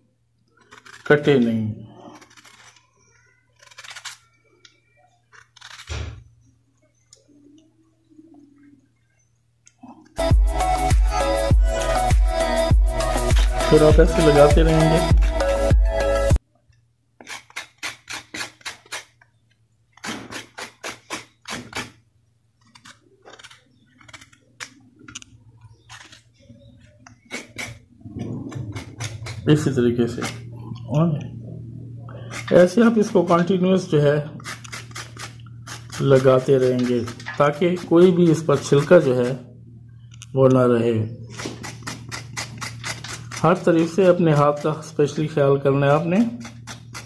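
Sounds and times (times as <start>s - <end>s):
knife scraping gourd skin: 0.6s - 4.2s, 5.3s - 6.2s, 17.2s - 19.3s, 19.9s - 22.0s, 22.6s - 30.5s, 32.1s - 39.5s, 41.2s - 47.0s.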